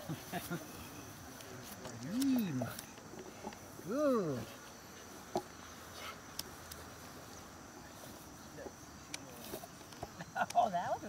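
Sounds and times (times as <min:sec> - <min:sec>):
high thin insect drone: 0:00.0 - 0:11.0.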